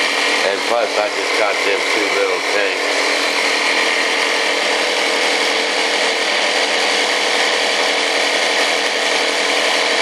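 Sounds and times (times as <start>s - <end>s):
electric air pump whining: 0.0s - 10.0s.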